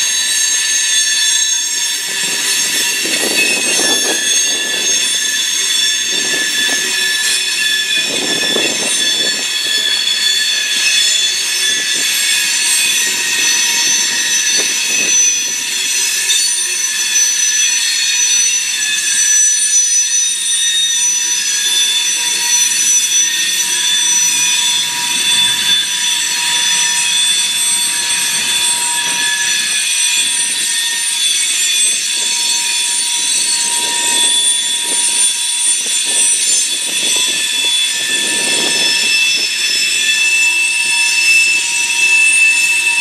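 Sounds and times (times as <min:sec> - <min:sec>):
rumble of rail cars: 0:00.0 - 0:43.0
train wheels squealing: 0:00.0 - 0:43.0.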